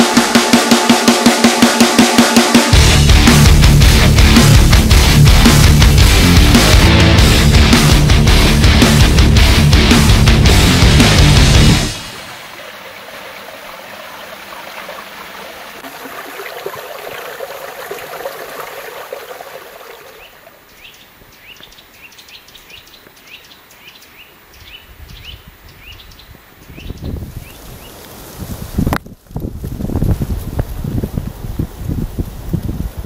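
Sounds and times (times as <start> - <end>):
stream rushing: 10.4 - 20.6
bird chirping: 20.0 - 28.0
wind rumble on microphone: 24.9 - 33.0.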